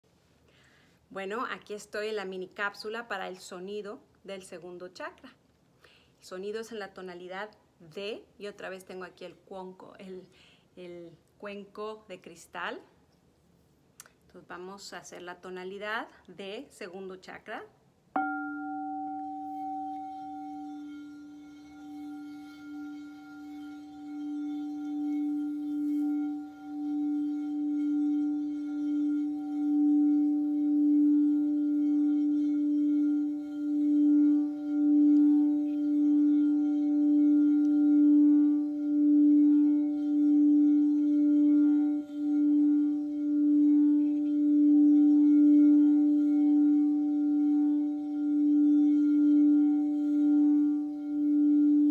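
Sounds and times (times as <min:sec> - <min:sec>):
singing bowl sustained tone: 0:18.2 - 0:51.9.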